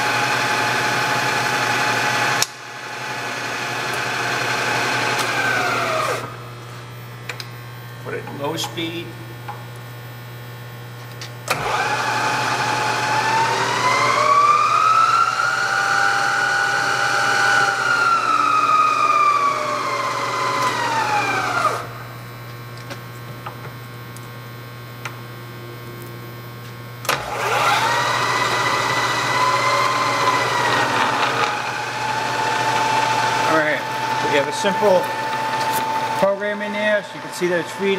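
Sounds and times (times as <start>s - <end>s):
milling machine whine: 0.0s - 7.0s, 11.5s - 22.2s, 27.0s - 37.9s.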